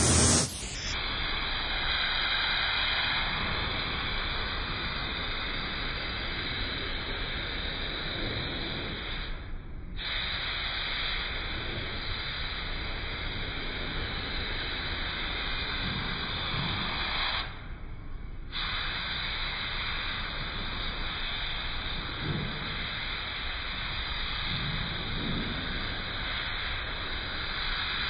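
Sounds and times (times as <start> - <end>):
paint spray gun hissing: 0.0 - 0.9.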